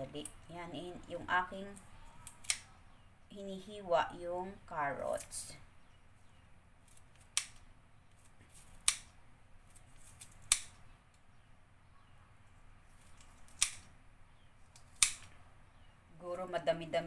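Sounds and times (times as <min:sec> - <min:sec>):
scissors snipping carrot: 0:01.7 - 0:02.7, 0:06.9 - 0:07.6, 0:08.6 - 0:09.1, 0:10.0 - 0:10.8, 0:13.1 - 0:13.9, 0:14.7 - 0:15.3.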